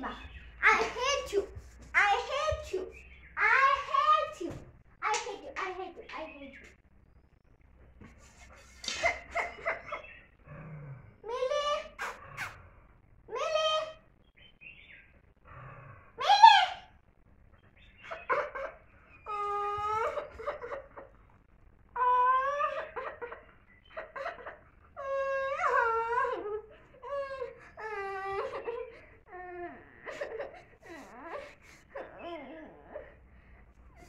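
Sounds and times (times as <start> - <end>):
girl wailing sobs: 19.3 - 20.6, 22.0 - 23.0, 25.0 - 33.0.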